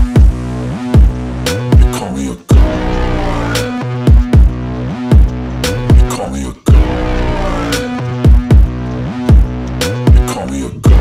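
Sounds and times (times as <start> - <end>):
hip-hop beat: 0.0 - 11.0
deep bass hits dropping in pitch: 2.5 - 6.1, 6.7 - 10.2.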